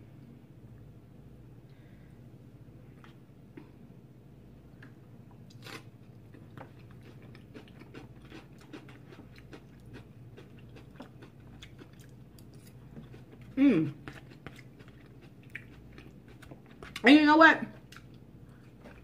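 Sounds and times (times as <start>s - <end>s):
crunchy chewing: 5.5s - 17.1s.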